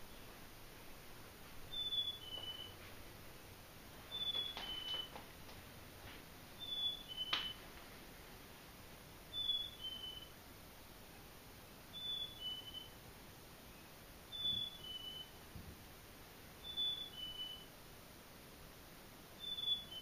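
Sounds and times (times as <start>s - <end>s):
chickadee two-note whistle: 14.3s - 15.4s.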